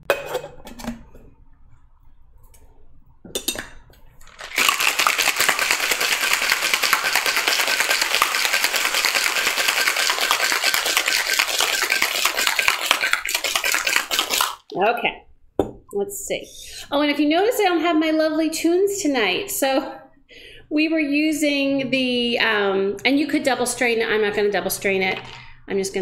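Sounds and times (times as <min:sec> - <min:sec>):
ice rattling in cocktail shaker: 0:04.2 - 0:14.6.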